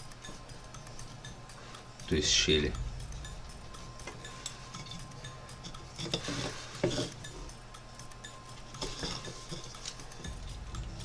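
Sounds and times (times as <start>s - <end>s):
knife carving wood: 5.6s - 7.4s.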